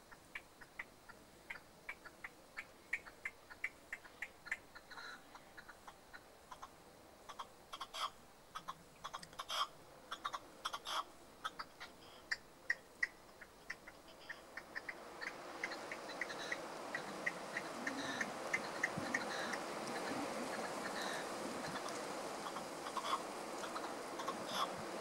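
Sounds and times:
partridge calling short notes: 7.4s - 24.8s
hiss: 14.8s - 25.0s.

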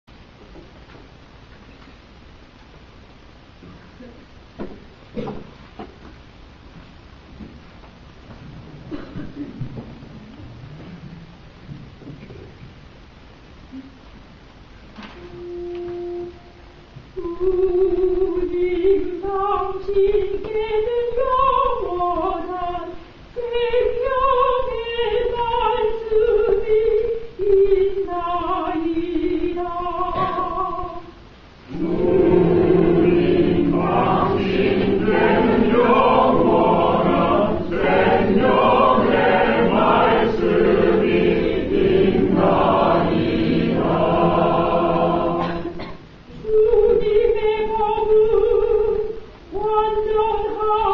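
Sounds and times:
woman singing alone: 17.2s - 31.2s
church choir singing: 31.7s - 45.9s.

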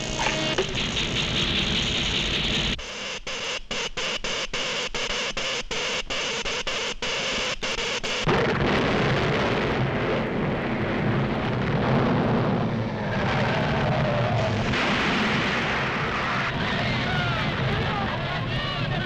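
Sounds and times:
earthquake rumble: 8.3s - 18.8s.

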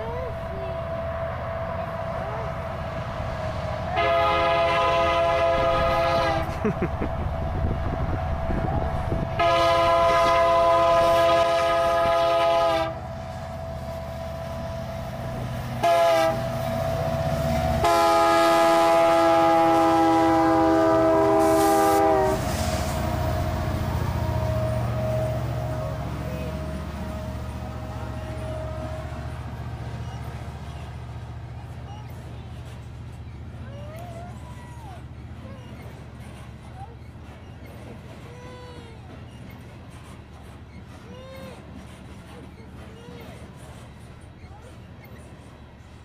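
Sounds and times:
freight cars rolling past: 0.0s - 38.3s
locomotive rumble: 0.0s - 46.0s
train air horn blasts: 3.9s - 6.5s, 9.3s - 13.1s, 15.8s - 16.6s, 17.8s - 23.5s, 26.6s - 29.3s.

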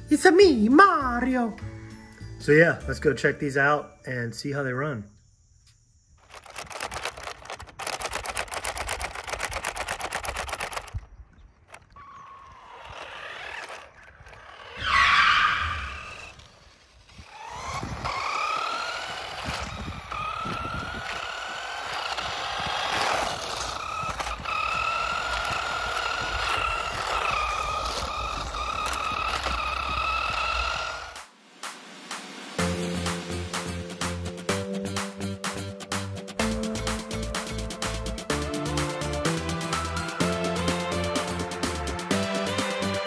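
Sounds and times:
fast rattle: 6.2s - 11.9s, 12.6s - 14.8s, 16.0s - 31.2s
toy car electric motor whining: 6.2s - 31.3s.

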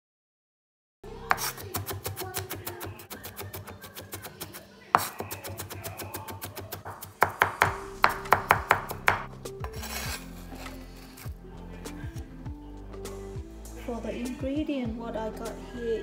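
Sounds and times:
cleaver chopping on bamboo board: 5.0s - 9.8s
background music: 5.0s - 16.0s.

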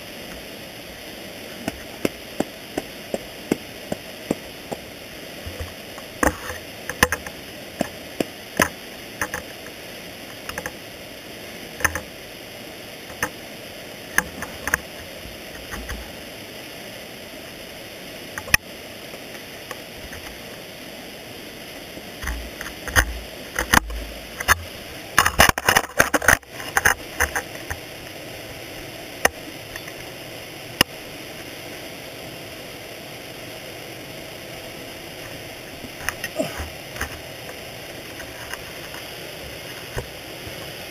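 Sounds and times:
steady hiss: 0.0s - 40.9s
ice axe scraping and knocking on rock: 1.5s - 9.5s.

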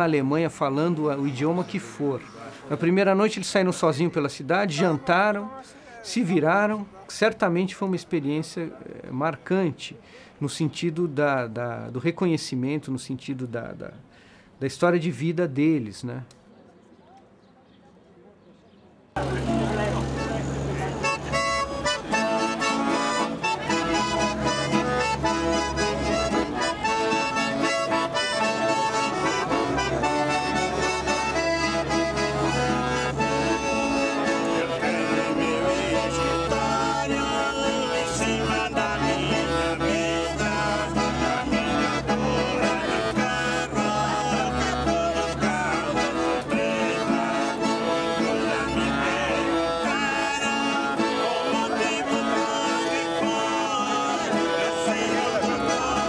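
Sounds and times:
accordions playing: 19.2s - 56.0s
acoustic guitar: 19.2s - 56.0s
man and woman singing: 34.5s - 56.0s.

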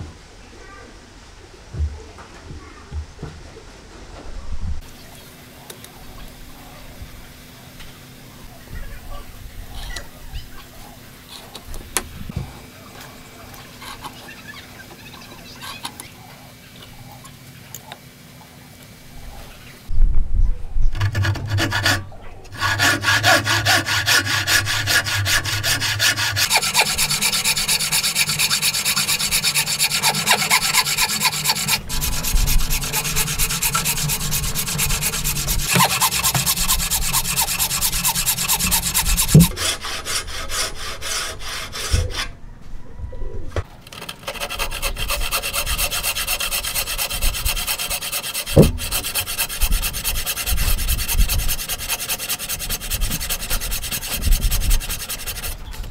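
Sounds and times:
hand saw rasping through wood: 21.0s - 42.3s, 43.9s - 55.9s.

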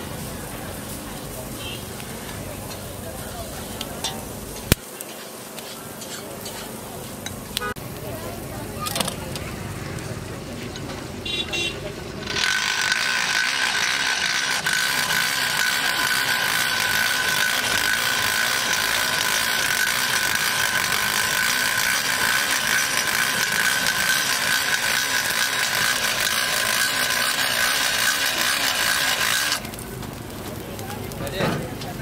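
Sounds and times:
mixer grinder running: 11.9s - 30.6s.

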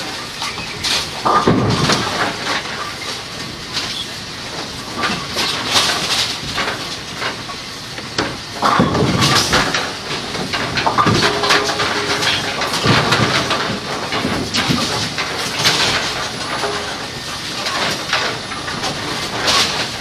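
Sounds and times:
machine clatter and hiss: 0.0s - 20.0s
machine lid clunk and rattle: 8.2s - 20.0s.

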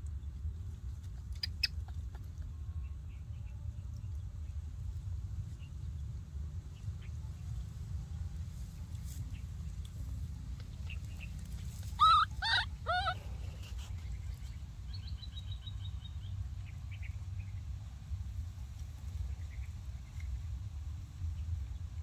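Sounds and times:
steady low rumble: 0.0s - 22.0s
loud animal calls: 11.9s - 13.5s.

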